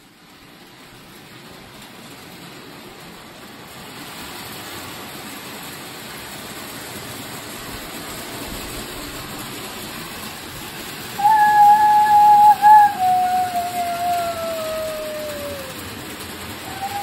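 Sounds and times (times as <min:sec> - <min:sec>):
model train whirring on track: 0:00.0 - 0:17.0.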